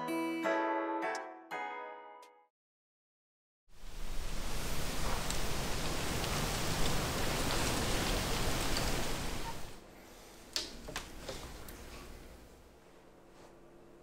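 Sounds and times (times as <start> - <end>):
wind through tree leaves: 3.7 - 9.8.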